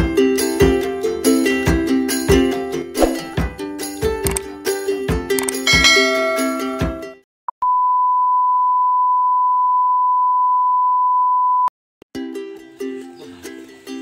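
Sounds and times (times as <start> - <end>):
music: 0.0 - 7.2, 12.1 - 14.0.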